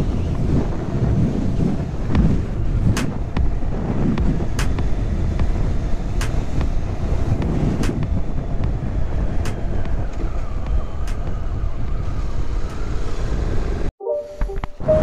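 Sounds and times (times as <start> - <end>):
wind and road noise: 0.0 - 15.0
music: 14.0 - 15.0.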